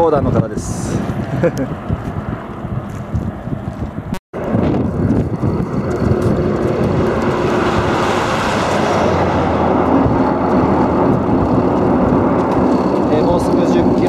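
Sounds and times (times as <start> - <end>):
highway traffic: 0.0 - 14.0
wind buffeting microphone: 0.0 - 14.0
bus passing close by: 4.4 - 14.0.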